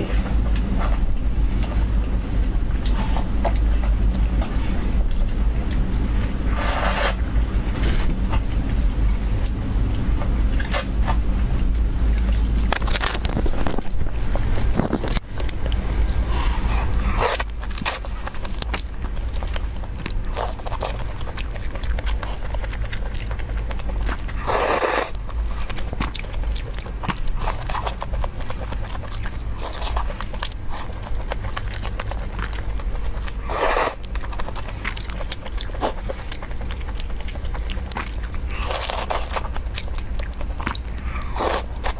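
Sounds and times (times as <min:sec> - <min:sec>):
chewing and wet mouth noises: 0:00.0 - 0:41.9
steady low hum: 0:00.0 - 0:41.9
noodle slurps: 0:06.5 - 0:07.2, 0:16.2 - 0:39.6, 0:40.5 - 0:41.9.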